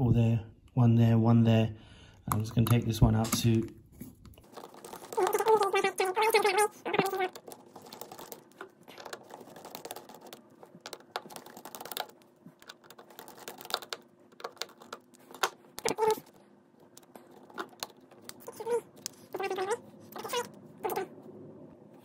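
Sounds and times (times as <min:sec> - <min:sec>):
fingers handling phone parts: 0:02.3 - 0:20.6.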